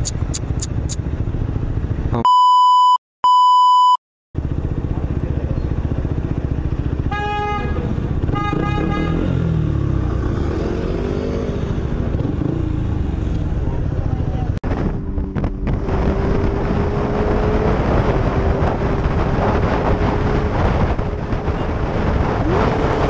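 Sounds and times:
censor bleep: 2.2 - 4.0
motorcycle engine idling: 4.4 - 8.2
horn honking: 7.0 - 9.5.

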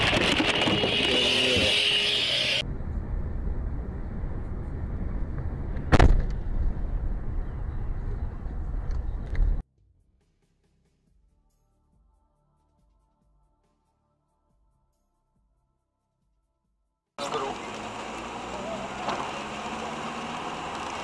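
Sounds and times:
car road and engine rumble: 17.2 - 21.0.

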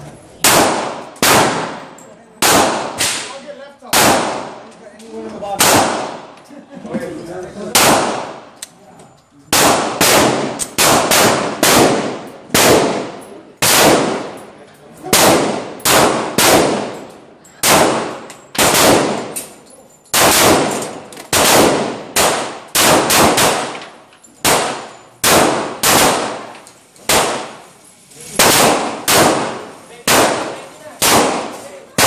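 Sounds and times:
handgun shots echoing indoors: 9.5 - 13.0, 15.1 - 27.6.

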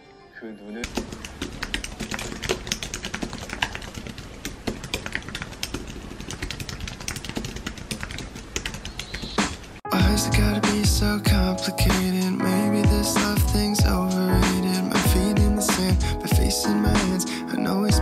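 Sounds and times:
fast typing on keyboard: 0.8 - 9.8.

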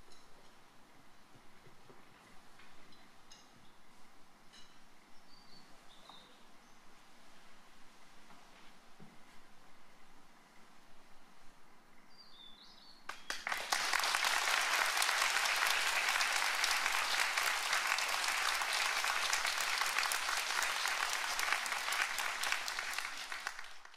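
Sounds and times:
audience applause: 13.1 - 23.9.

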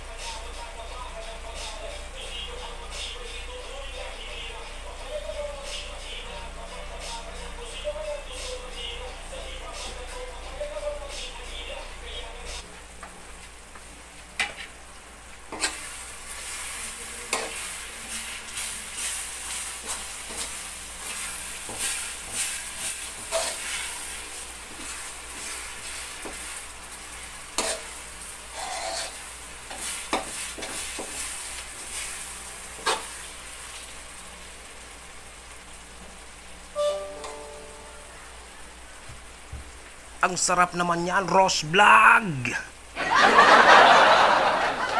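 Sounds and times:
food sizzling: 0.0 - 44.9
metal spoon scraping and knocking pan: 27.6 - 27.9.

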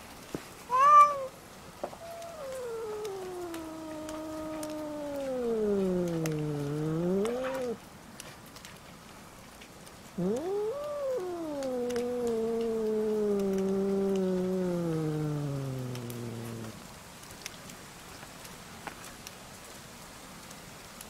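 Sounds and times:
cats yowling: 0.7 - 7.8, 10.2 - 16.8.

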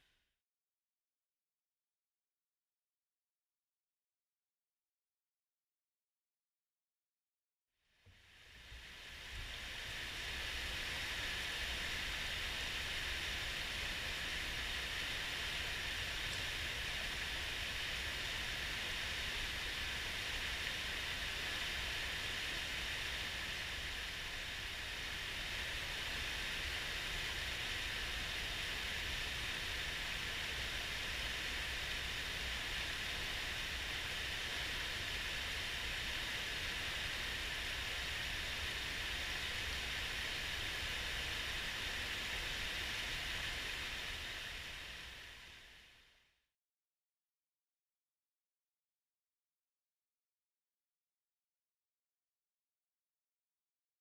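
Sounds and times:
mountain stream rushing: 9.0 - 45.5.

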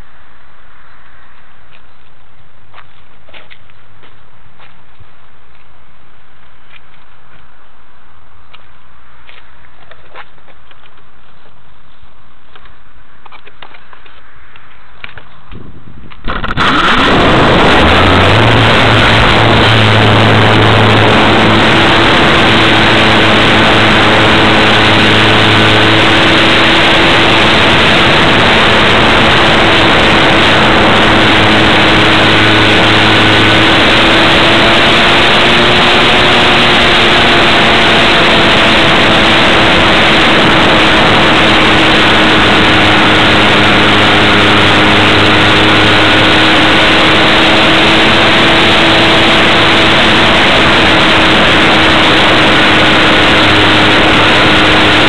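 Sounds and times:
loud wind rush: 15.4 - 55.0
model plane motor droning: 16.3 - 55.0.

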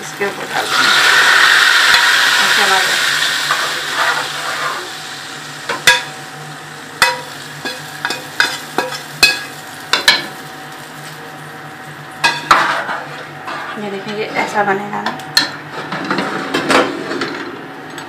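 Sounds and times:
hot oil sizzling: 0.0 - 13.1.

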